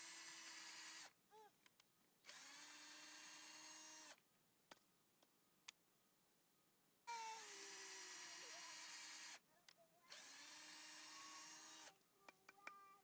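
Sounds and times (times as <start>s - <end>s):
cordless drill boring into wood: 0.0s - 1.1s, 2.3s - 4.2s, 7.1s - 9.4s, 10.1s - 12.0s.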